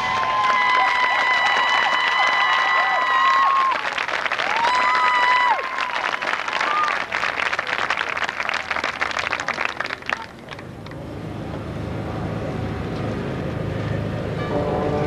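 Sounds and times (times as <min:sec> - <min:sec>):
crowd applause: 0:00.0 - 0:11.0
marching band brass chord: 0:14.3 - 0:15.0.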